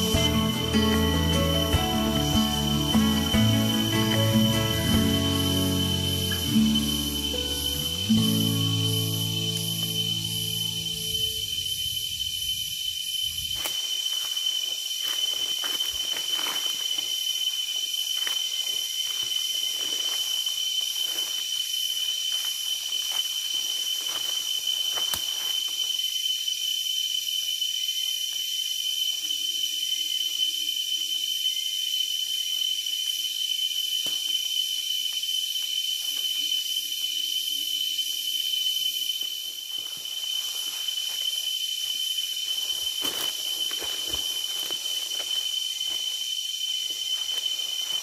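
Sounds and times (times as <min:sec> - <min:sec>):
footsteps in dry leaves: 0:00.0 - 0:12.0, 0:13.3 - 0:26.0, 0:39.4 - 0:48.0
insects droning: 0:00.0 - 0:48.0.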